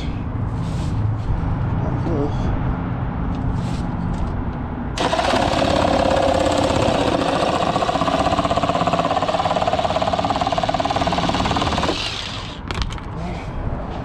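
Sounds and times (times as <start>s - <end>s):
power saw cutting plastic: 5.0s - 12.6s.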